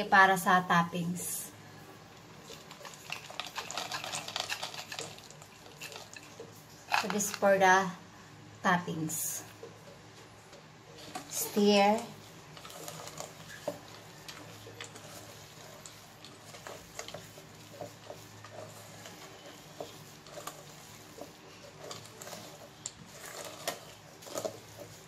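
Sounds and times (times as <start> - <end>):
spatula scraping steel bowl: 11.0 - 25.0.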